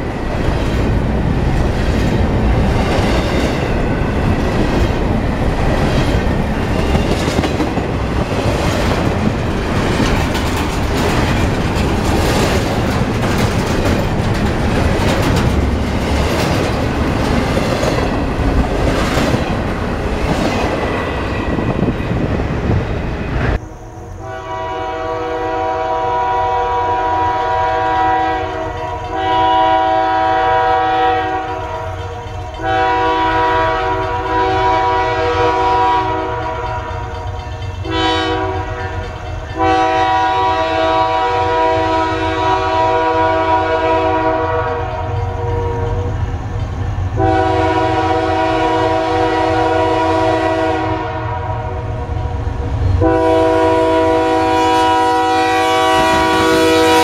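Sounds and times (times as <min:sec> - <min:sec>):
low rumble of freight train: 0:00.0 - 0:57.0
locomotive air horn blasts: 0:24.2 - 0:31.9, 0:32.6 - 0:36.9, 0:37.8 - 0:39.0, 0:39.6 - 0:46.1, 0:47.2 - 0:51.9, 0:53.0 - 0:57.0.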